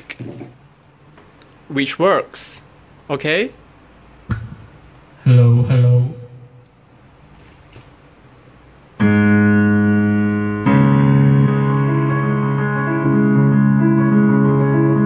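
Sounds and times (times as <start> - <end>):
piano chords: 9.0 - 15.0.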